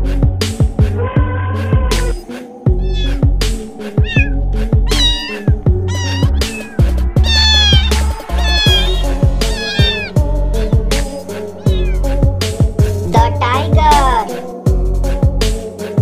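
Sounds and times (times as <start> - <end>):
music with heavy bass beat: 2.0 - 15.8
cat meowing: 2.7 - 3.3, 3.9 - 10.2, 11.3 - 12.2.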